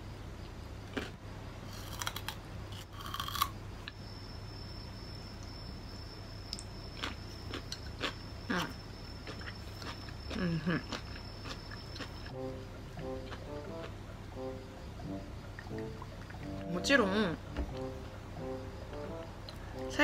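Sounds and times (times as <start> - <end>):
crunching bites of vegetables: 0.8 - 3.6, 6.5 - 12.3
faint high whine: 3.4 - 10.2.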